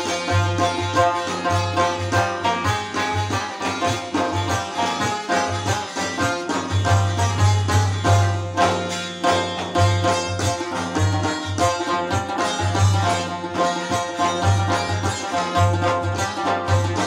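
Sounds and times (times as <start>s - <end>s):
frame drum beat: 0.0s - 17.0s
plucked string melody: 0.0s - 17.0s.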